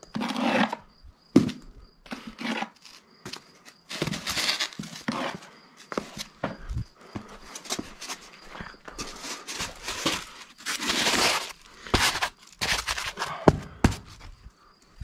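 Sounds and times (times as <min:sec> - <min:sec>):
scraping and crinkling polystyrene: 0:03.9 - 0:05.4, 0:07.6 - 0:13.3.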